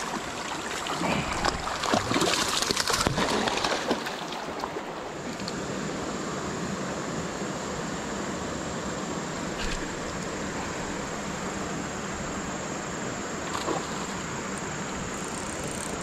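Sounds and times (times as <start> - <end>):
stream water running: 0.0 - 16.0.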